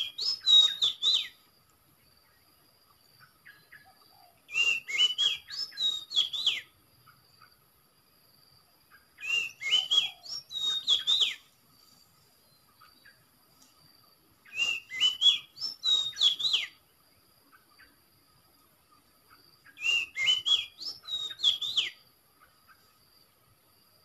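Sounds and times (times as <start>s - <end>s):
recorded bird song whistled notes: 0.0s - 1.5s, 3.2s - 7.2s, 8.9s - 11.6s, 14.4s - 16.9s, 19.3s - 22.1s.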